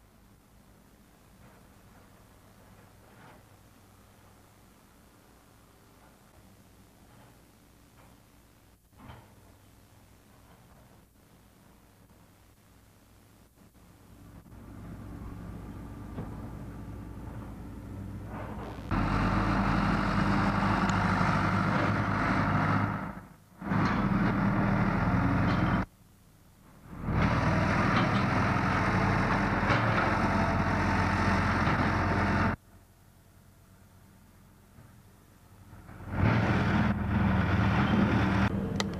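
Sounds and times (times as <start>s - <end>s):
construction machinery diesel engines: 14.1s - 38.9s.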